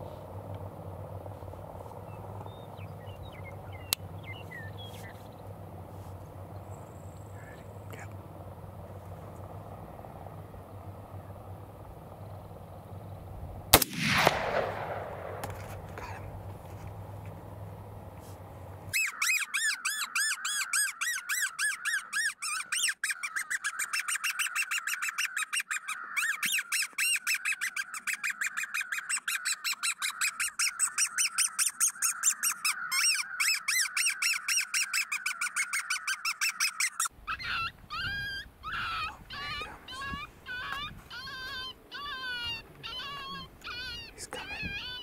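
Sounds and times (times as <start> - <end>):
wavering predator call: 18.2 - 45.0
predator call squealing distress cries: 18.9 - 45.0.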